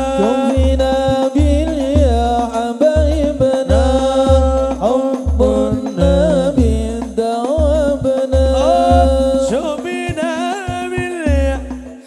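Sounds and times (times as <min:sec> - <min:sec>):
frame drum accompaniment: 0:00.0 - 0:12.0
man singing: 0:00.0 - 0:12.0
deep bass drum strokes: 0:05.3 - 0:07.2.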